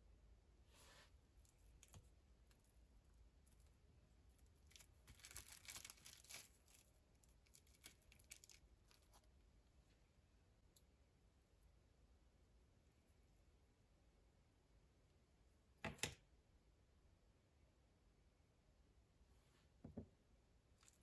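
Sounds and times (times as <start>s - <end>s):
plastic wrap crinkling: 4.4s - 9.3s.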